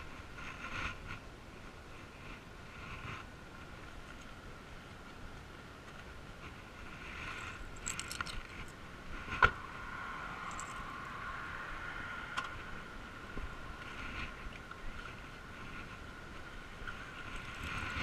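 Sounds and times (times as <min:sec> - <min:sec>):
light jingling clicks: 0:07.4 - 0:08.8, 0:10.5 - 0:10.9.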